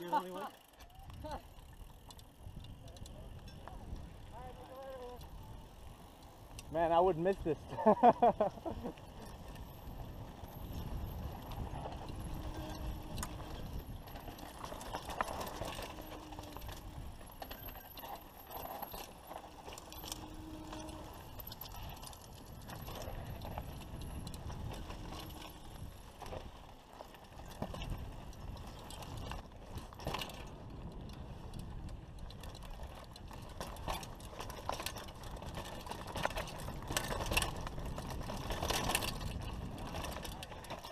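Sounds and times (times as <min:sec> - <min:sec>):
bike parts rattling and clattering: 0:00.0 - 0:40.9.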